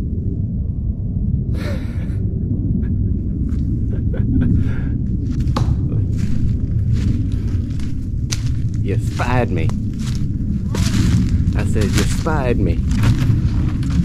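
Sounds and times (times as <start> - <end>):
low microphone rumble: 0.0 - 14.0
footsteps in dry leaves: 5.3 - 14.0
fronds swishing: 6.1 - 14.0.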